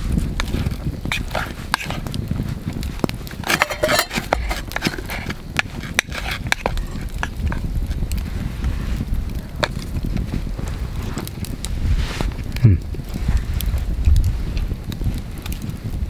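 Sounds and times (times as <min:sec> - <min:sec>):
campfire crackling and popping: 0:00.0 - 0:16.0
utensil scraping metal pot: 0:00.4 - 0:08.8.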